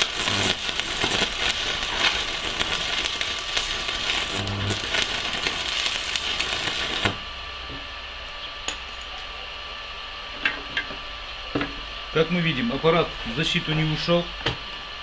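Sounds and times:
welding arc crackling: 0.0s - 9.3s.

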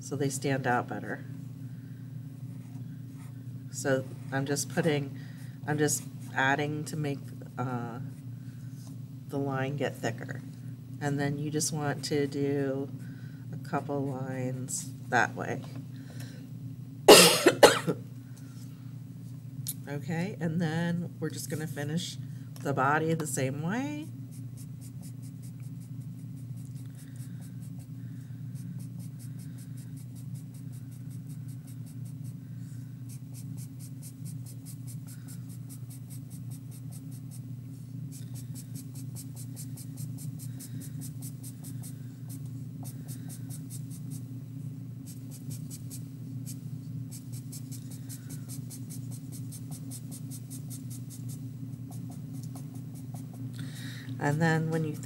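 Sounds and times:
steady low hum: 0.0s - 55.0s
marker scratching on paper: 38.3s - 44.2s, 45.1s - 53.4s.

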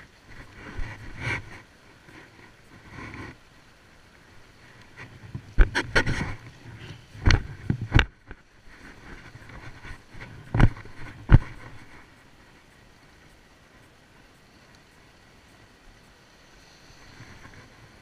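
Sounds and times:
sea and wind: 0.0s - 18.0s
camera handling knocks and rubs: 5.0s - 6.6s, 7.2s - 8.1s, 9.2s - 12.0s.

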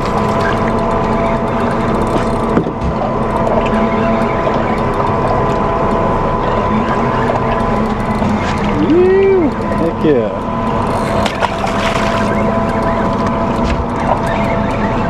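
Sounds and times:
fishing reel ticking: 0.0s - 2.6s, 3.2s - 15.0s
boat engine humming: 0.0s - 15.0s.

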